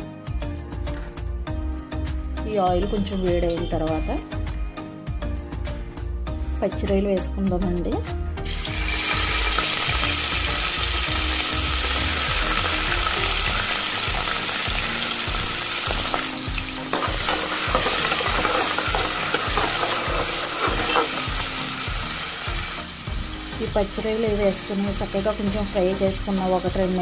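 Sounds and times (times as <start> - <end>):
prawns sizzling in hot oil: 8.4 - 27.0.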